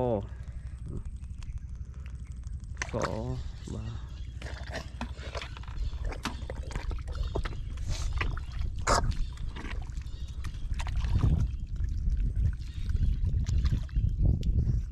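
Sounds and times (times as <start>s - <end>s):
steady low rumble: 0.0s - 14.9s
boots squelching in wet mud: 4.4s - 11.6s.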